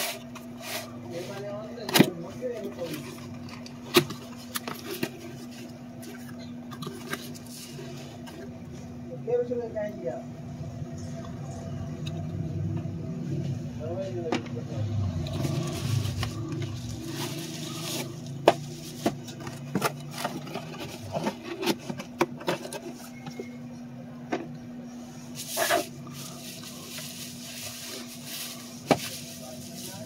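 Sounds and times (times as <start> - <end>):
cardboard and bubble wrap rustling: 0.0 - 8.6, 15.3 - 23.4, 25.2 - 30.0
steady low hum: 0.0 - 30.0.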